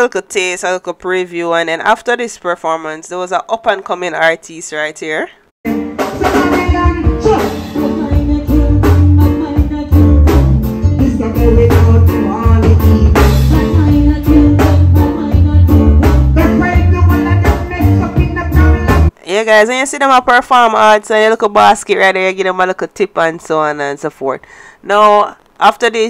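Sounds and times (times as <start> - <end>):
reggae band playing: 5.6 - 19.1
man singing: 6.1 - 19.2.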